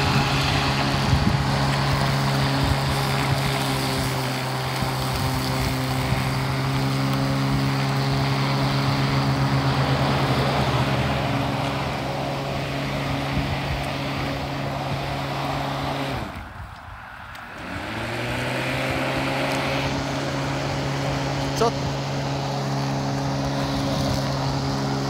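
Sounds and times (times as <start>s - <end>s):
electric lawn mower running: 0.0s - 25.0s.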